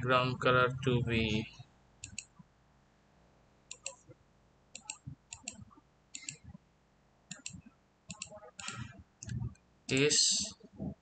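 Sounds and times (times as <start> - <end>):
computer mouse clicking: 2.0 - 2.4, 3.7 - 4.1, 4.8 - 6.6, 7.3 - 9.6.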